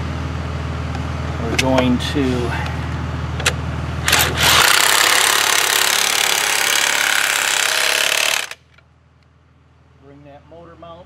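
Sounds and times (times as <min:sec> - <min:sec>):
impact wrench rattling: 0:04.1 - 0:08.8.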